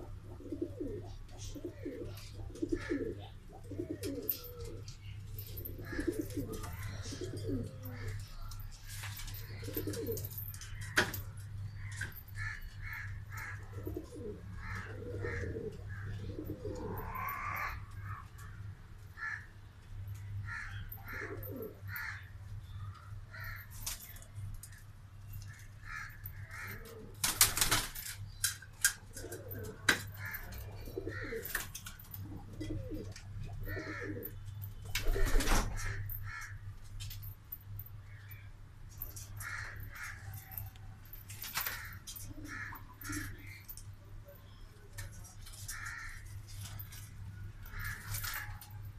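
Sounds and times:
pigeons cooing: 0.0 - 8.4, 9.1 - 11.2, 11.9 - 18.6, 20.6 - 22.3, 26.0 - 27.7, 28.8 - 36.6, 41.4 - 43.8.

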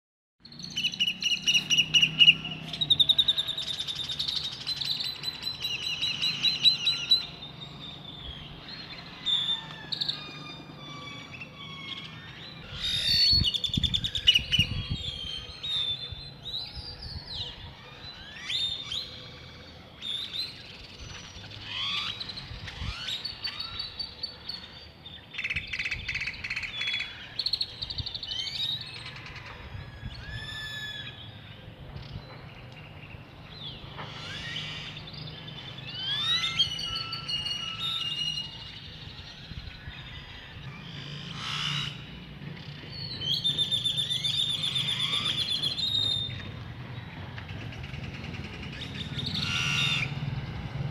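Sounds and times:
birds chirping and whistling: 0.4 - 50.8.

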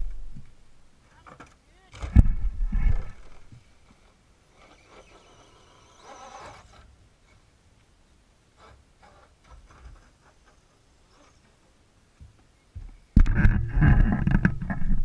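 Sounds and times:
faint electric motor whine: 2.0 - 7.5
faint bumps: 8.5 - 15.0.

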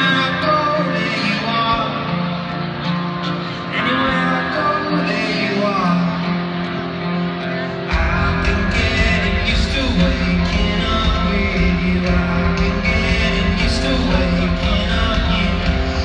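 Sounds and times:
man singing: 0.0 - 6.6, 7.4 - 16.0
acoustic guitar: 0.0 - 16.0
heavy drum and bass beat: 7.9 - 16.0.

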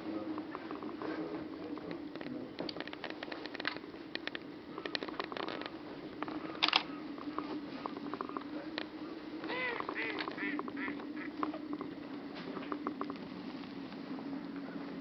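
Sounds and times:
steady low hum: 0.0 - 15.0
sharp clicks: 6.6 - 7.4
duck quacking: 9.5 - 11.4.

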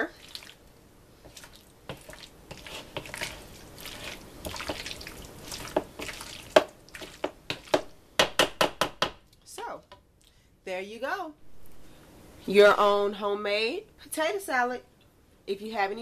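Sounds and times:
wet squelching and scraping: 0.1 - 0.7, 1.3 - 7.7.

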